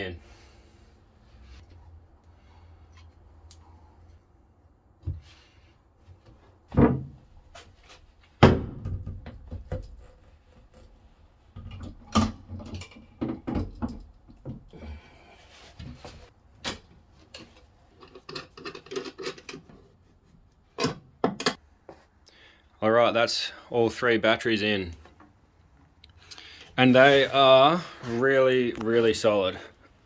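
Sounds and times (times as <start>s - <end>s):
metallic rattle of nuts: 16.7s - 19.7s.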